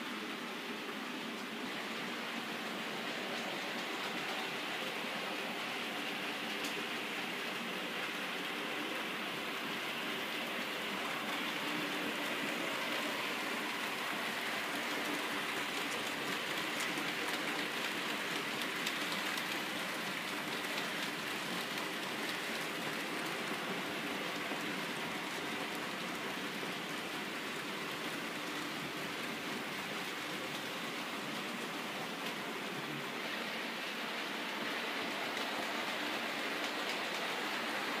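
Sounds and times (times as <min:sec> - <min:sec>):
model train wheels rattling on rails: 0:11.0 - 0:30.7.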